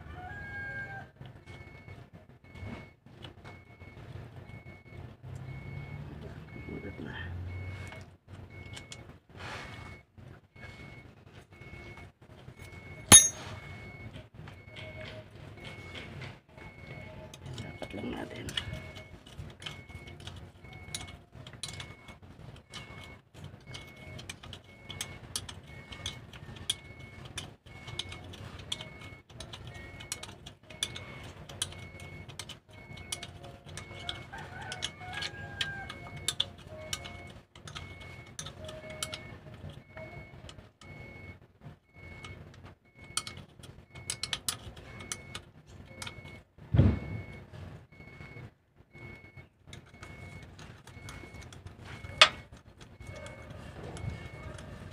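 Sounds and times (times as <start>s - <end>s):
loud thump: 46.7s - 47.2s.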